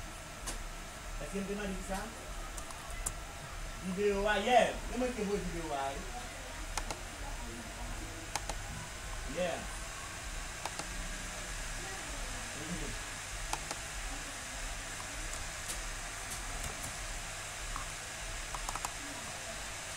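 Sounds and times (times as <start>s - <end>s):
microphone hiss and hum: 0.0s - 19.9s
faint mouse clicks: 2.6s - 3.2s, 6.8s - 7.0s, 8.3s - 8.6s, 10.6s - 10.9s, 18.5s - 19.0s.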